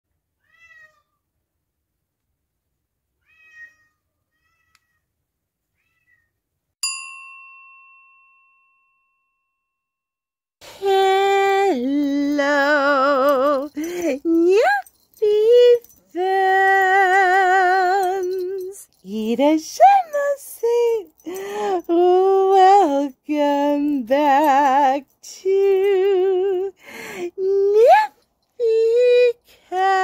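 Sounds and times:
cat meowing: 0.4s - 1.2s, 3.2s - 5.0s, 5.8s - 6.3s
bell-like ding: 6.8s - 9.9s.

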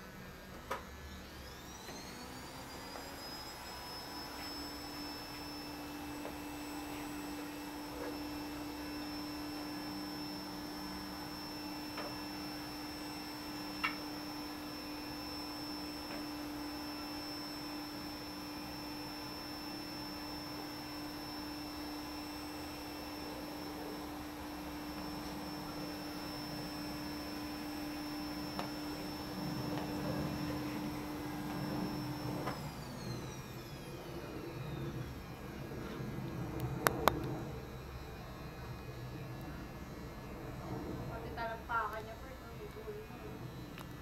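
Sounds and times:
electric motor whine: 0.0s - 44.0s
low hum: 20.2s - 44.0s.

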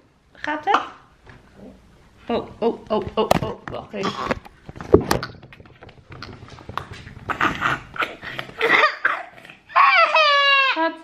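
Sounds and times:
toddler coughing and gagging: 7.6s - 10.3s.

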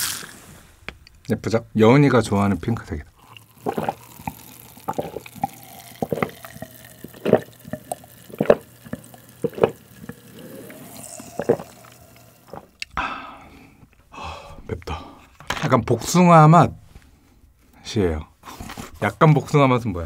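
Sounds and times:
person gulping drink: 3.2s - 13.3s.

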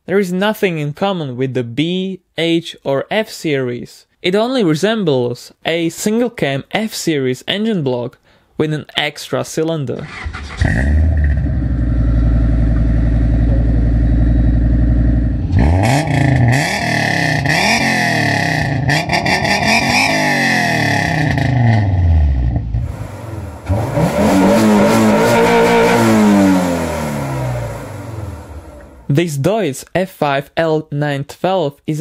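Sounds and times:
car engine idling and revving: 10.2s - 29.1s.

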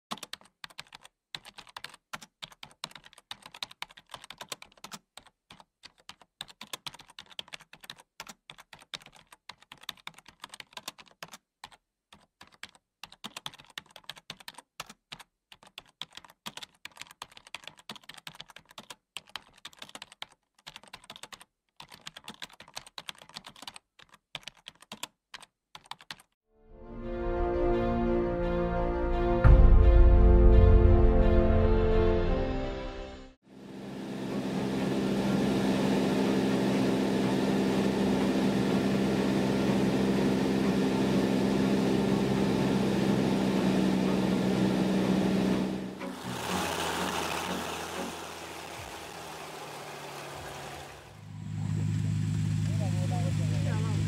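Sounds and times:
keyboard typing clicks: 0.1s - 26.4s.

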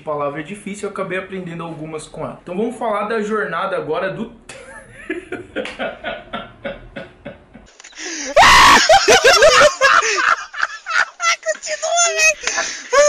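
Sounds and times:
voices laughing and calling out: 6.5s - 13.0s.

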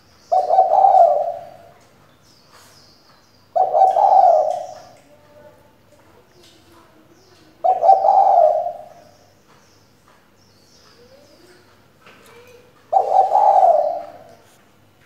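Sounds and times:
dove cooing: 0.3s - 1.8s, 3.5s - 5.5s, 7.5s - 9.3s, 12.9s - 14.4s.

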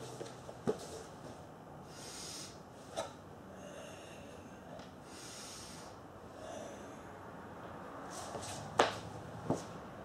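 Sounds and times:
long forceful breaths: 1.8s - 2.7s, 3.4s - 7.5s.

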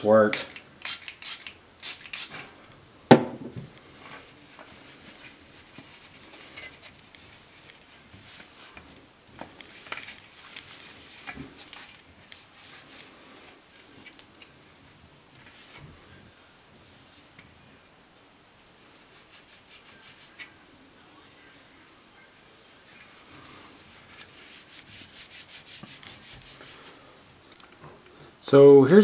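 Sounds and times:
pump spray bottle spritz: 0.4s - 2.4s
cloth rubbing on plastic: 4.2s - 14.2s, 19.0s - 20.6s, 22.7s - 27.1s.

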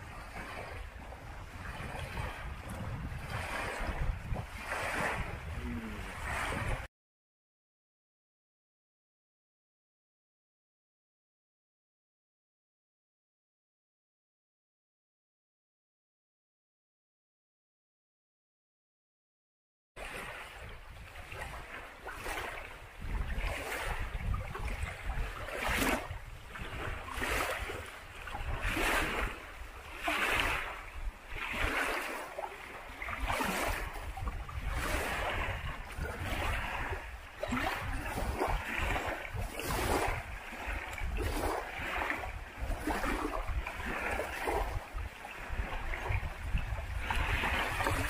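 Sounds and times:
small waves lapping: 0.0s - 6.9s, 20.0s - 48.0s
wind rumble on microphone: 0.0s - 6.9s, 20.0s - 48.0s.

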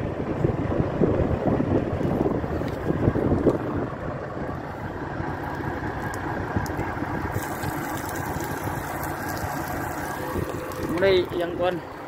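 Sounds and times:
diesel truck engine idling: 0.0s - 12.0s
wind buffeting microphone: 0.0s - 12.0s
water splashing onto asphalt: 5.2s - 12.0s.

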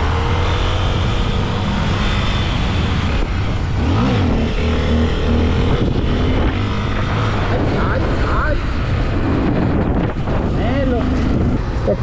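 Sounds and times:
wind rush on microphone: 0.0s - 12.0s.

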